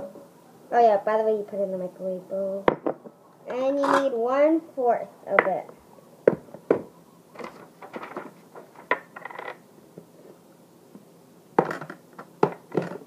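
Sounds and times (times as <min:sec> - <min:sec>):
plastic containers clinking: 0:07.4 - 0:09.6.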